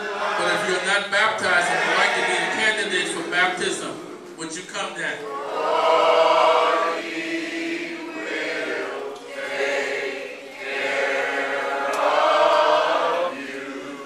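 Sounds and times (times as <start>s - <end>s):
choir singing a hymn: 0.0s - 4.5s, 5.2s - 14.0s.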